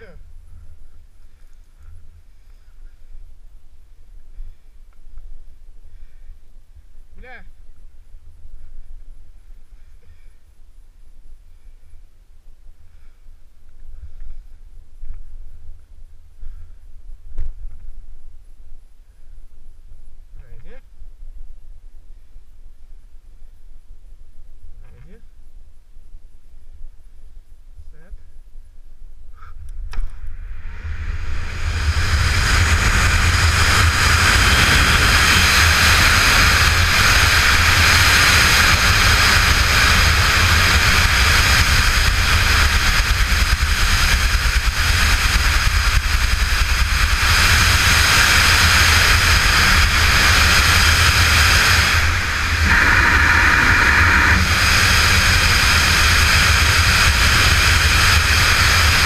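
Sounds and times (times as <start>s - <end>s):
deep rumble: 0.0s - 10.2s, 29.2s - 59.0s
wind roaring over microphone: 29.4s - 59.0s.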